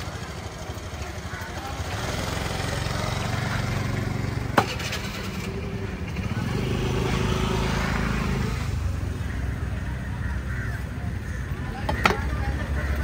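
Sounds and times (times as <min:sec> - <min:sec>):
small engine running: 0:00.0 - 0:09.4.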